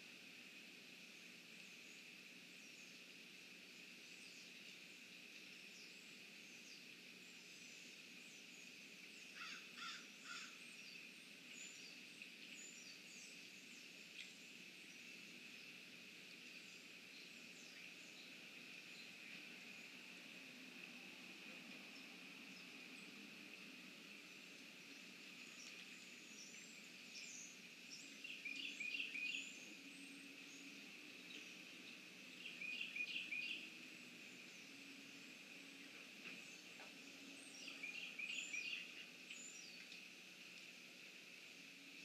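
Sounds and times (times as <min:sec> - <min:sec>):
small birds chirping: 0:04.0 - 0:20.6, 0:21.6 - 0:40.1
harsh caw-like bird calls: 0:09.4 - 0:10.6.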